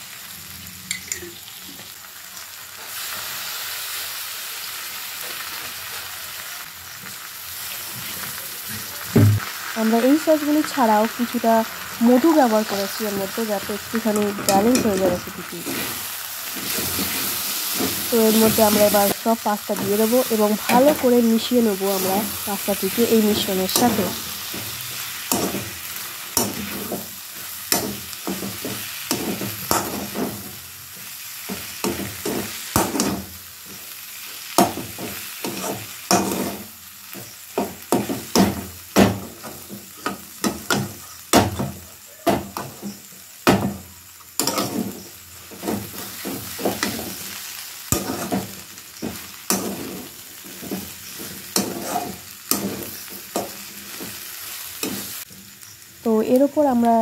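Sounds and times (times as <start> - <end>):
frying sizzle: 0.0 - 57.0
metal spatula scraping pan: 47.9 - 54.2.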